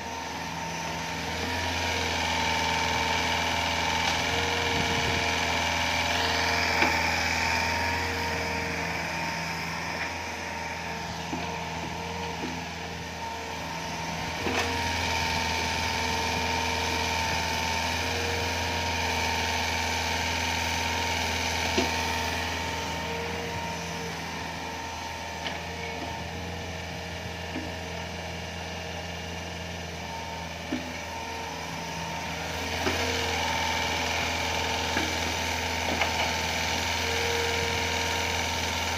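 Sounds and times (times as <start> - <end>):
excavator diesel engine running: 0.0 - 38.9
hydraulic whine: 0.0 - 38.9.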